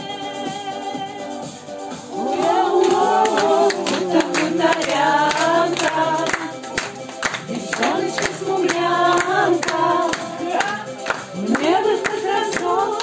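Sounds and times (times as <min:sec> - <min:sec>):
woman singing: 0:00.0 - 0:01.6, 0:07.5 - 0:13.0
backing music with steady beat: 0:00.0 - 0:13.0.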